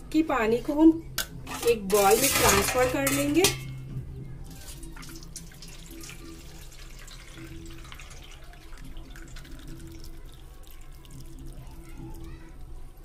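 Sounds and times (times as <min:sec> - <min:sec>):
water pouring through a strainer: 0:04.5 - 0:13.0
water trickling and dripping: 0:04.5 - 0:13.0.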